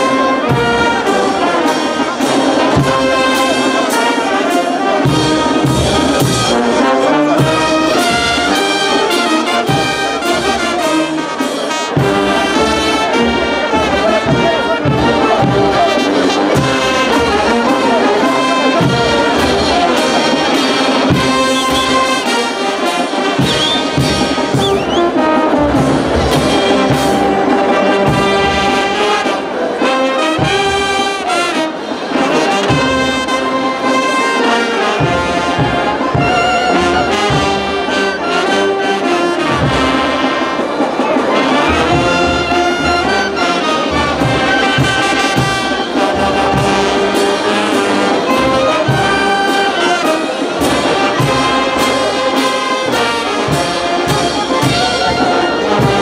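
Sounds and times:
brass band playing: 0.0 - 56.0.

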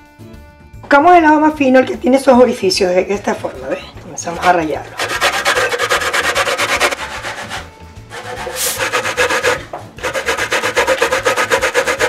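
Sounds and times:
grater scraping strokes: 4.4 - 12.0.

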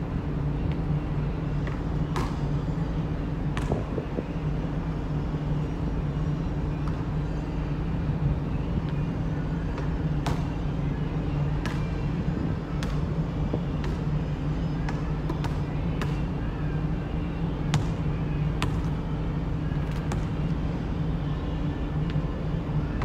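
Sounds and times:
steady low hum: 0.0 - 23.0
basketball bouncing on court: 1.6 - 2.6, 3.5 - 4.2, 9.8 - 10.6, 12.7 - 14.1, 14.8 - 16.2, 17.7 - 19.0.

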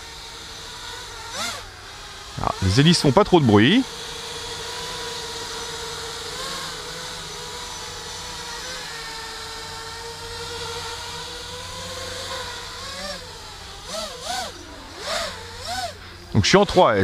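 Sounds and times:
quadcopter motor whine: 0.0 - 17.0.

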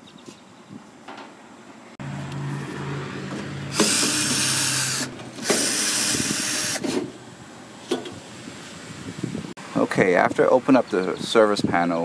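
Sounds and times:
cordless drill whirring: 3.7 - 7.0.

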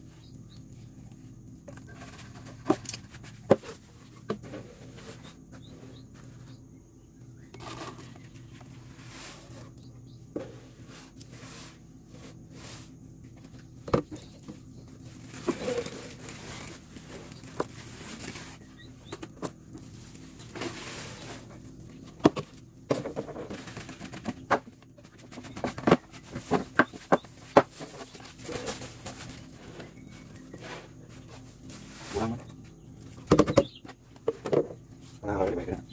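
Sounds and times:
mealworms rustling: 0.0 - 22.2.

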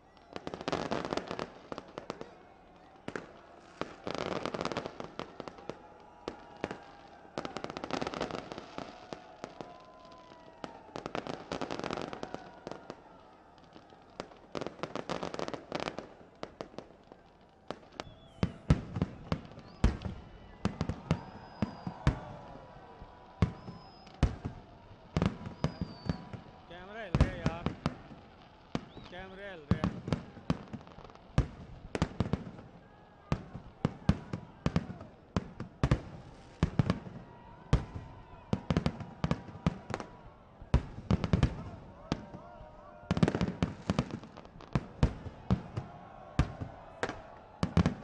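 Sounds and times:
fireworks bangs: 0.0 - 48.0
fireworks crackling: 0.0 - 48.0
fireworks whistles: 17.8 - 30.2.

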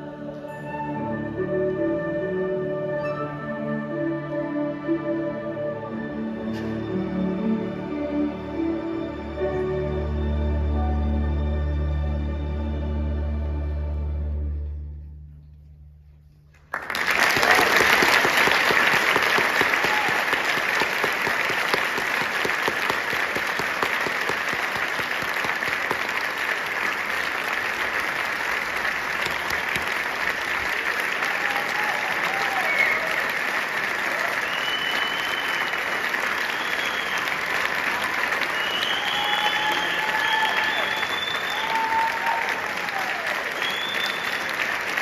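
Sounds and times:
orchestra and choir chord: 0.0 - 15.4
audience applauding: 16.6 - 45.0
audience whistling: 16.8 - 26.5, 29.2 - 30.0, 31.1 - 45.0
audience cheering: 16.8 - 45.0.

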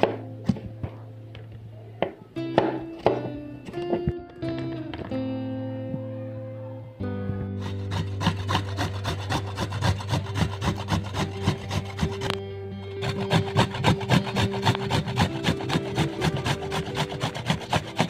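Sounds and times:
background music: 0.0 - 18.0
ginger rasping on grater: 7.6 - 12.4, 13.0 - 18.0.

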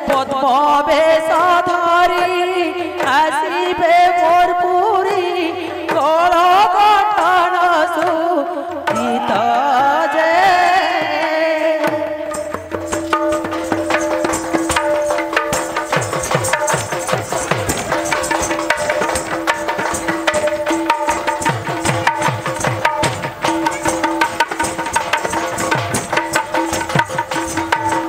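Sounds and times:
woman singing folk song: 0.0 - 12.3
hand-played barrel drum: 0.0 - 28.0.

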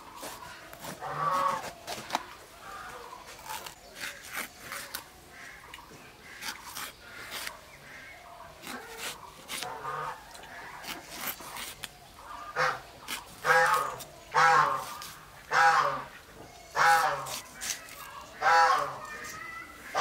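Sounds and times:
crisp cuts slicing pepper: 8.6 - 9.8.

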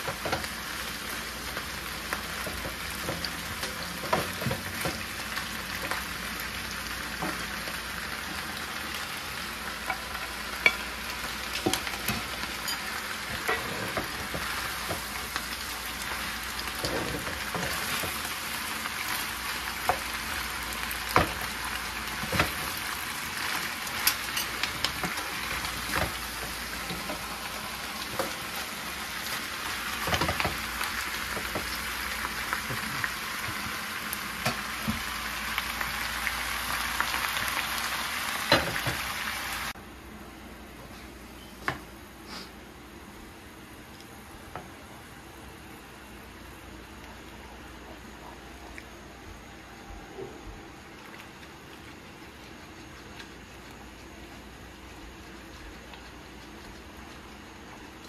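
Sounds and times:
food sizzling in a pan: 0.0 - 39.8.

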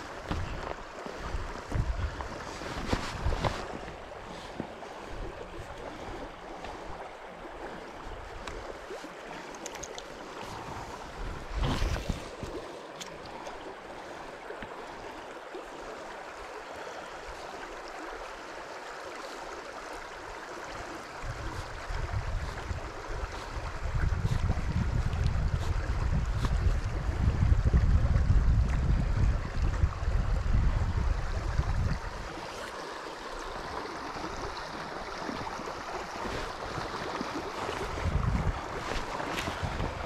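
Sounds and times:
wind buffeting microphone: 0.0 - 4.2, 21.1 - 32.4, 36.2 - 40.0
low wind rumble: 0.0 - 8.7, 21.1 - 32.4, 36.3 - 40.0
river water flowing over riffle: 0.0 - 40.0.

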